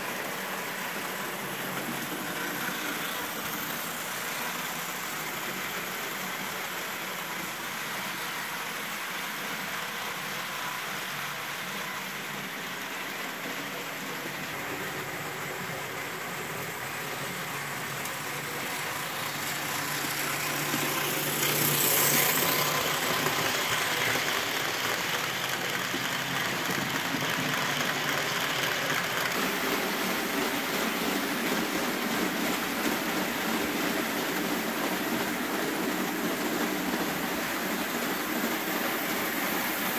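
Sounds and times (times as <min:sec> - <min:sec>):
model train wheels clattering: 0:14.2 - 0:39.7.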